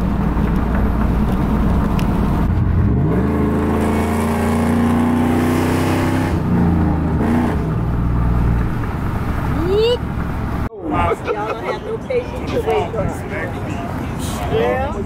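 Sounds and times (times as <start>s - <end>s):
truck engine under load: 0.0s - 10.7s.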